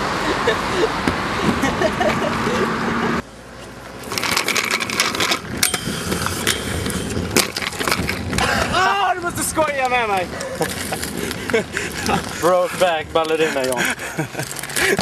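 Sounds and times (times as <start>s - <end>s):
skate wheels rolling on pavement: 3.6s - 15.0s
skate frames grinding metal rail: 4.0s - 13.8s.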